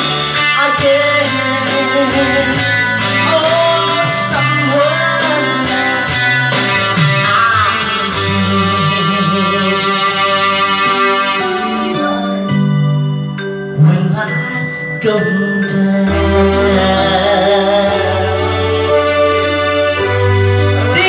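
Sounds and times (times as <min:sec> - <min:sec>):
backing track with guitar: 0:00.0 - 0:21.0
man singing into a microphone: 0:00.4 - 0:12.9, 0:13.7 - 0:20.2, 0:20.8 - 0:21.0.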